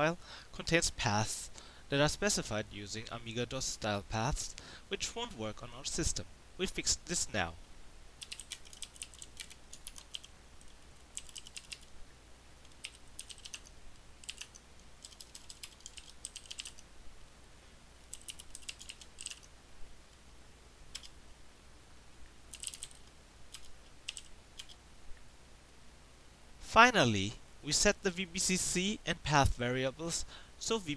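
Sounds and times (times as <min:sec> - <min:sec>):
typing on computer keyboard: 0:08.2 - 0:11.9, 0:12.7 - 0:16.8, 0:18.1 - 0:19.5, 0:22.5 - 0:24.8.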